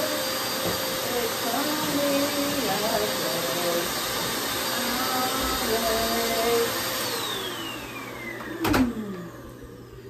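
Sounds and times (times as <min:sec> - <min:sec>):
vacuum cleaner running: 0:00.0 - 0:10.0.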